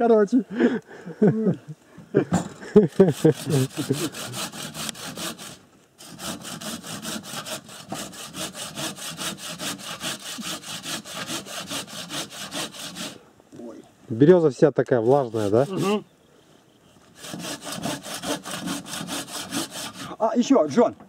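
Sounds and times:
hand saw cutting log: 2.9s - 13.2s, 15.0s - 16.0s, 17.1s - 20.2s.

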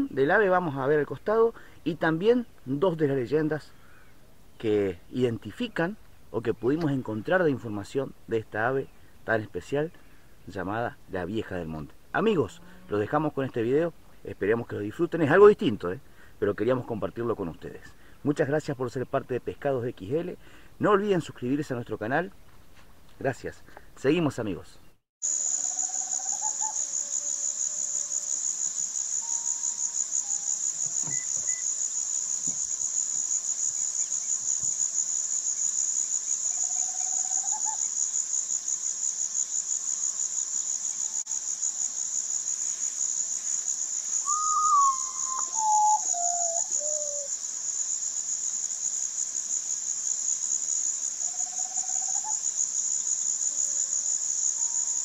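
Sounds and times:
high-pitched insect chorus: 25.2s - 55.0s
bird song descending notes: 44.2s - 47.3s.

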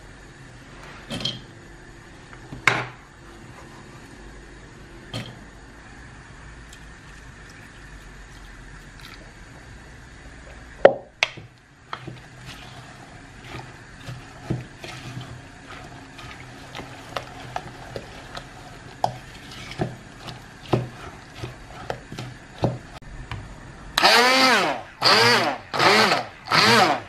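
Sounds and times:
wooden spoon scraping a bowl: 3.2s - 4.3s, 11.9s - 22.8s.

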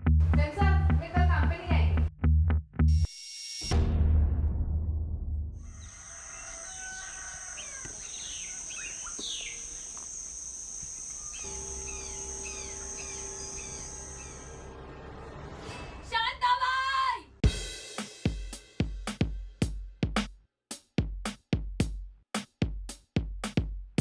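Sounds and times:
low boom: 3.8s - 5.6s
small birds chirping: 5.6s - 14.7s
steady high hiss: 8.0s - 14.7s.

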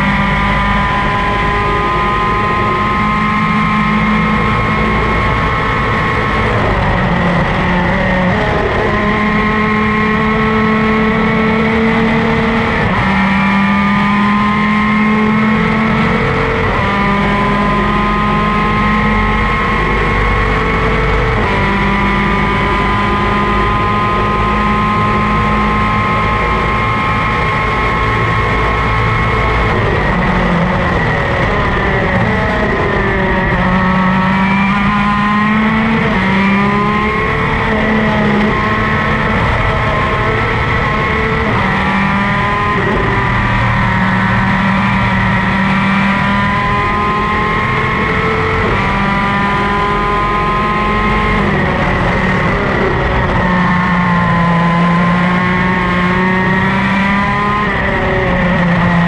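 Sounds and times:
two-stroke racing engine: 0.0s - 59.0s.

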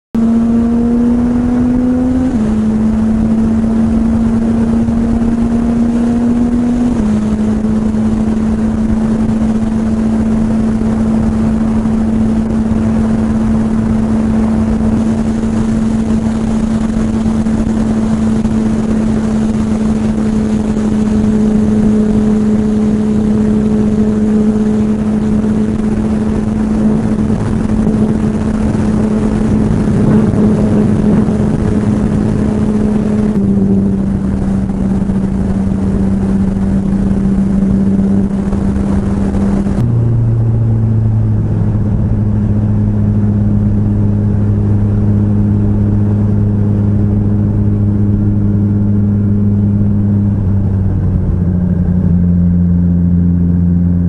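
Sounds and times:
motorcycle engine cruising: 0.2s - 54.0s
wind rushing: 0.3s - 52.1s.

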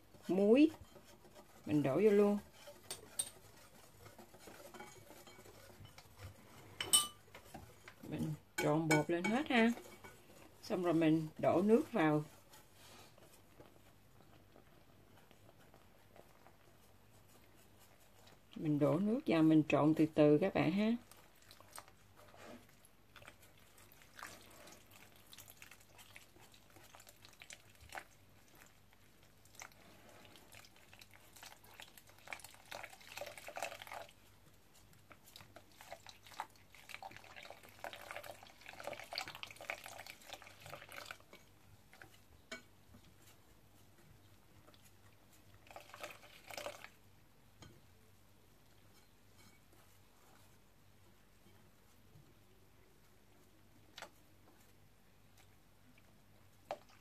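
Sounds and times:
whisk stirring batter: 0.0s - 47.8s, 53.6s - 57.0s
water pouring: 29.4s - 34.2s, 35.3s - 41.4s, 45.6s - 47.0s.

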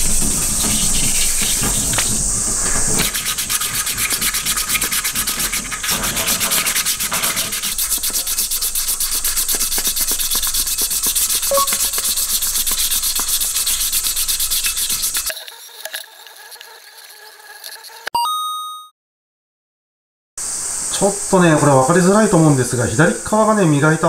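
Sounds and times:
sandpaper rubbing metal: 0.0s - 18.1s.

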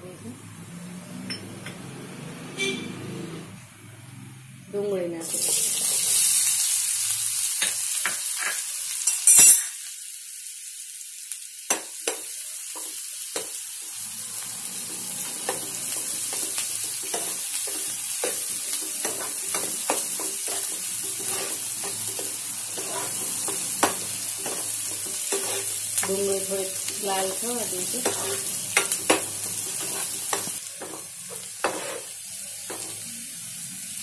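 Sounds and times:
onions sizzling in hot oil: 4.7s - 34.0s
spoon scraping a pan: 14.8s - 33.1s.

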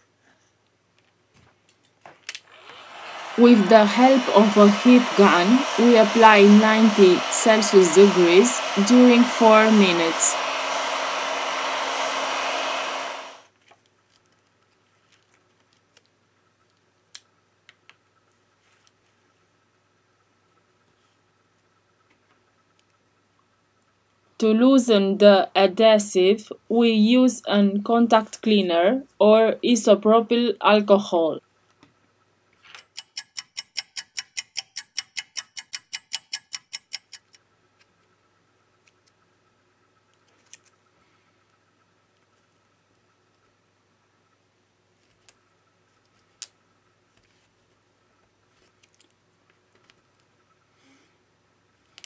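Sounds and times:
heat gun blowing air: 2.5s - 13.5s
clock ticking: 32.8s - 37.4s.

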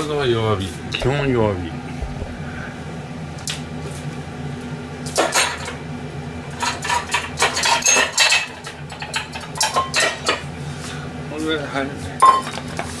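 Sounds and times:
steady low hum: 0.0s - 12.4s
kitchenware clinking and clattering: 5.2s - 5.8s, 6.6s - 10.5s, 12.2s - 12.8s.

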